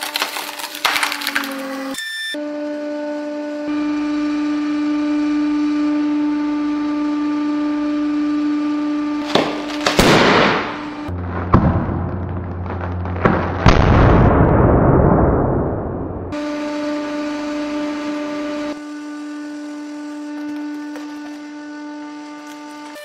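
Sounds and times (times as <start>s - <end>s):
hydraulic pump motor humming: 0.4s - 11.2s, 16.3s - 23.0s
tennis ball bursting with bang: 9.2s - 15.4s.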